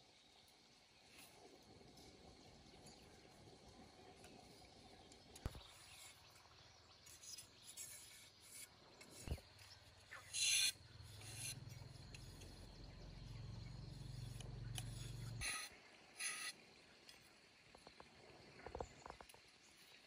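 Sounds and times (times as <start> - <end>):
knife scraping bamboo: 5.5 - 12.6, 14.0 - 17.2.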